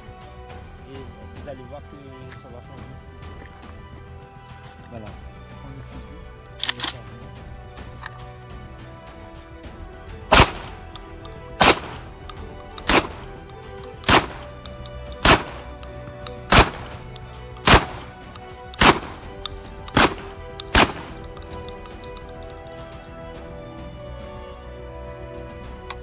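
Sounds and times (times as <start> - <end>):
shotgun shots: 10.3 - 10.9, 11.6 - 12.1, 12.8 - 13.3, 14.0 - 14.6, 15.2 - 15.8, 16.4 - 21.2.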